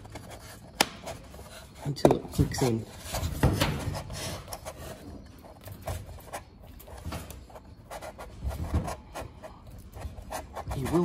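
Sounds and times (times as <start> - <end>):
plastic knocks and rubbing: 2.0 - 5.1.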